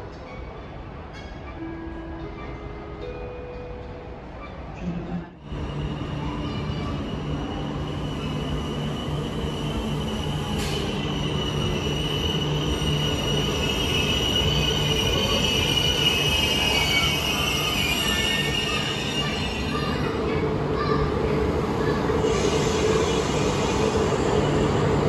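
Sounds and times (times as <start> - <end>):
train rumbling on rails: 0.0 - 25.0
high-pitched wheel squeal: 5.9 - 20.0.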